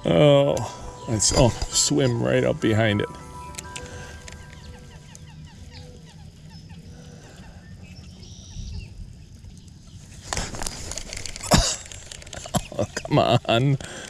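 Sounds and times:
bird calling falling notes: 0.0s - 8.8s
rustling handling noise: 10.0s - 13.0s.

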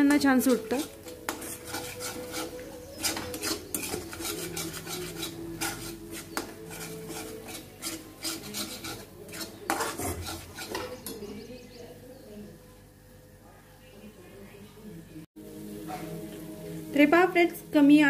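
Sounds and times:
spoon scraping metal pan: 0.1s - 11.4s.

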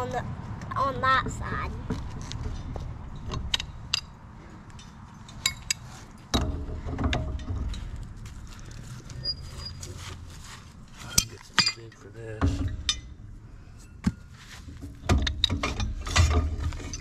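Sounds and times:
hand tools clinking on steel: 10.9s - 12.2s
metal knock and ring: 11.1s - 13.2s.

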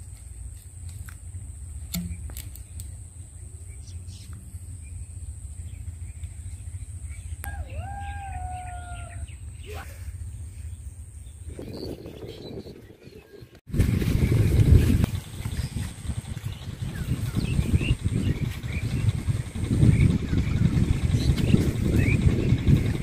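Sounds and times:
low rumble: 0.0s - 23.0s
rooster crowing: 7.4s - 9.4s.

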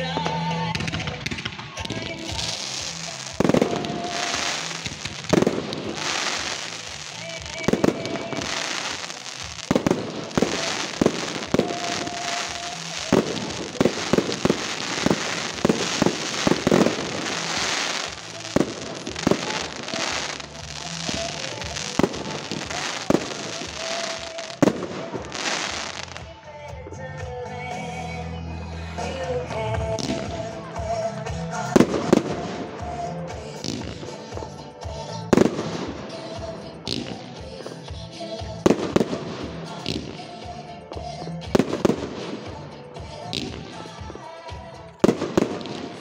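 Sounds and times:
background music: 0.0s - 46.0s
fireworks bangs: 0.1s - 26.3s, 31.7s - 34.4s, 35.3s - 37.8s, 38.6s - 40.5s, 45.0s - 46.0s.

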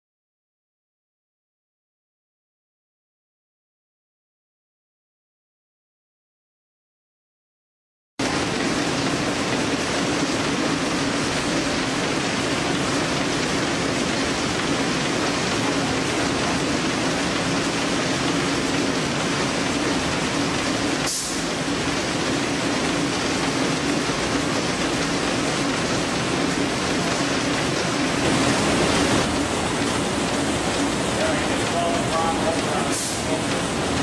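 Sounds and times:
packaging machine running: 8.2s - 34.0s
short sharp high hiss: 21.0s - 21.5s.

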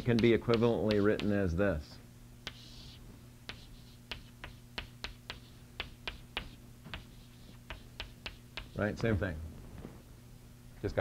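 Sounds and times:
chalk scratching: 0.0s - 1.4s, 2.5s - 8.9s
chalk tapping on blackboard: 0.0s - 1.4s, 2.4s - 8.9s.

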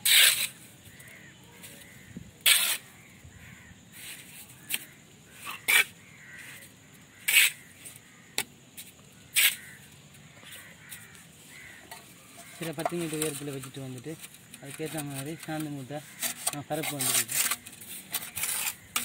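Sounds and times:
trowel scraping mortar on brick: 0.0s - 0.7s, 1.6s - 3.0s, 4.0s - 6.0s, 7.2s - 7.8s, 9.3s - 9.8s, 10.4s - 19.0s.

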